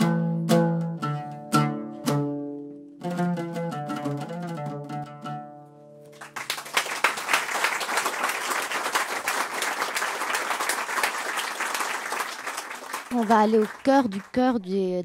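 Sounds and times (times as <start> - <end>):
audience applause: 6.1 - 14.4.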